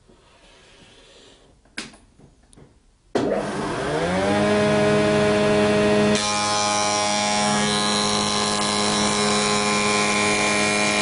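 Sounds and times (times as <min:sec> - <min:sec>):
spindle moulder motor whine: 0:03.2 - 0:11.0.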